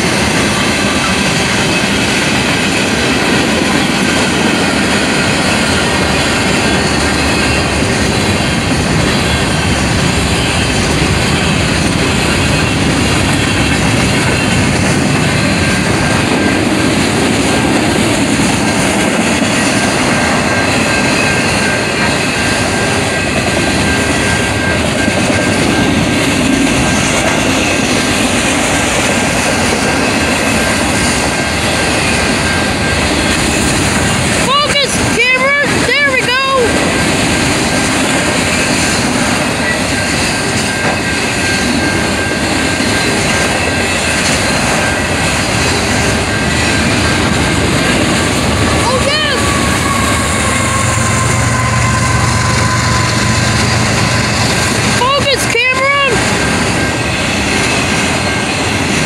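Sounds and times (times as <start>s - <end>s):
freight train wheels on rails: 0.0s - 59.0s.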